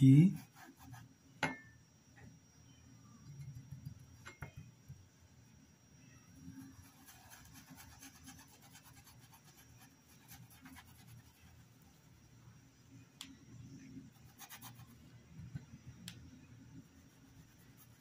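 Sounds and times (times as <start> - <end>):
paintbrush scratching on cloth: 0.3 - 1.1, 6.5 - 12.2, 14.1 - 15.0, 16.9 - 18.0.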